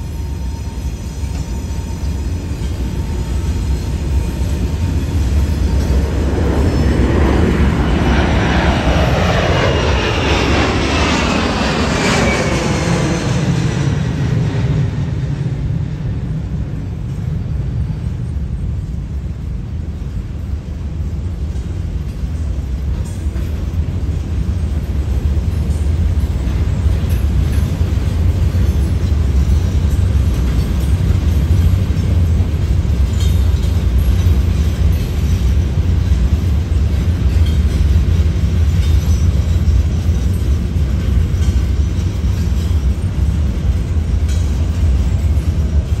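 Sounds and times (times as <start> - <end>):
freight train rumbling past: 0.0 - 46.0.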